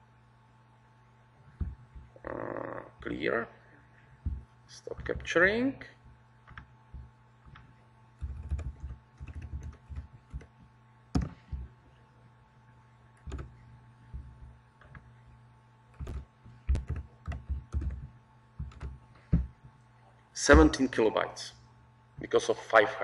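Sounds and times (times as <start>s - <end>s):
computer keyboard typing: 6.5s - 6.7s, 7.4s - 10.5s, 11.1s - 11.6s, 13.2s - 15.0s, 15.9s - 19.0s.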